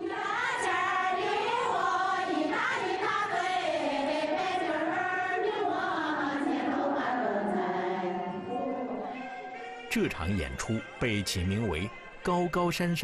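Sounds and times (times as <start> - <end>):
women singing together: 0.0 - 9.7.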